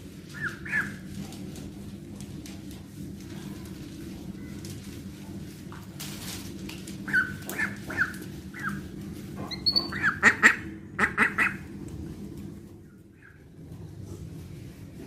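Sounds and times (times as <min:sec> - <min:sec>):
young duck calling: 0:09.8 - 0:11.6.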